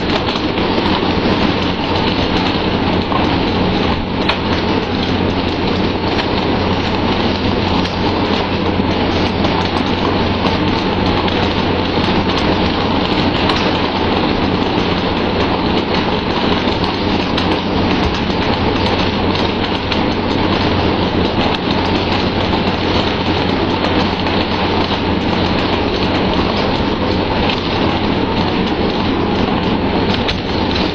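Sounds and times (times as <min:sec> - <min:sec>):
engine hum: 0:00.0 - 0:30.9
water rushing along boat hull: 0:00.0 - 0:30.9.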